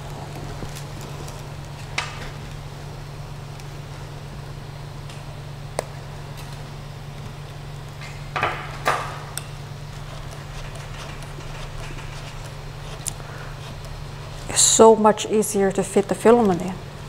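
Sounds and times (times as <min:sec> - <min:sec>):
three d printer humming: 0:00.0 - 0:17.0
filament scraping rustles: 0:08.9 - 0:17.0.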